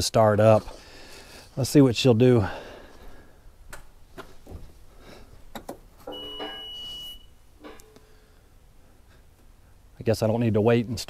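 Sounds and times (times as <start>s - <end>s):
electronic warning beep: 6.1s - 7.4s.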